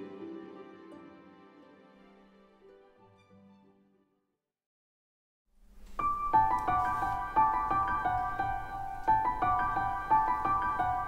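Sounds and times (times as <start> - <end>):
piano melody: 0.0 - 3.4, 5.6 - 11.0.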